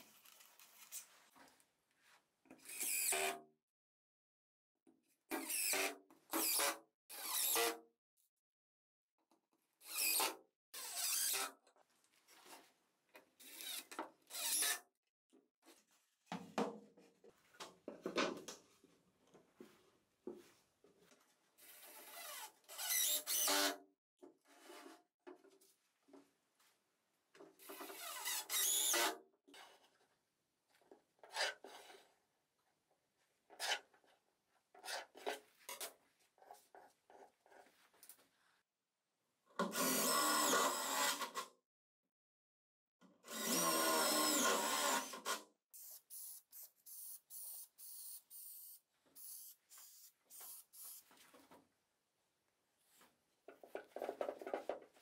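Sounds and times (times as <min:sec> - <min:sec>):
cordless drill boring into wood: 0:22.0 - 0:23.7, 0:39.8 - 0:41.2, 0:43.3 - 0:51.0.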